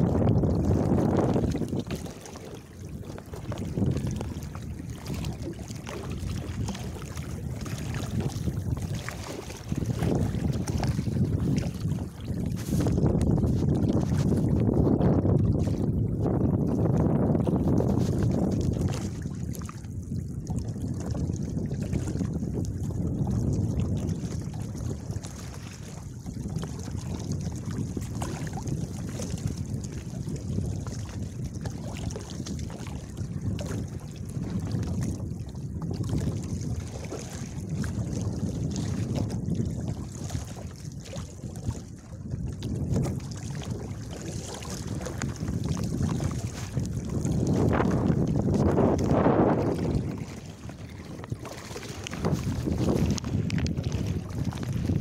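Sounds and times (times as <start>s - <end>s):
choppy sea water splashing: 0.0s - 55.0s
wind buffeting microphone: 0.0s - 55.0s
water splashing against board: 44.5s - 55.0s.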